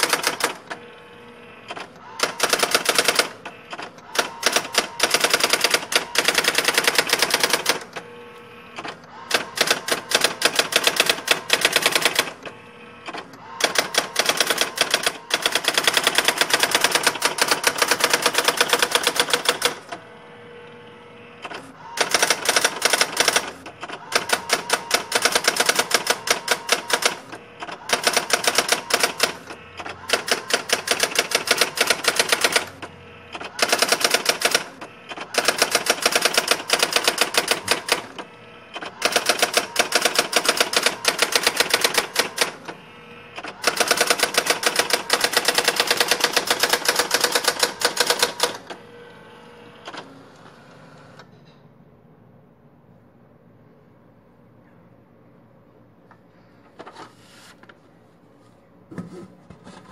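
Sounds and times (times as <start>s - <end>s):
typewriter daisy wheel strikes: 1.7s - 7.9s, 13.1s - 19.8s, 22.0s - 38.2s, 38.8s - 42.6s.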